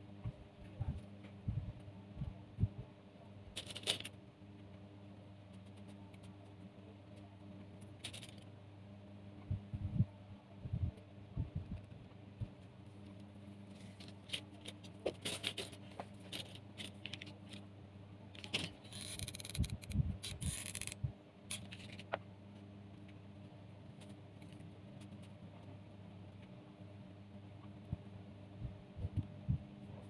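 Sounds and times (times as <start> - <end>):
wooden skewers clicking and scraping: 13.1 - 17.6, 18.4 - 22.2.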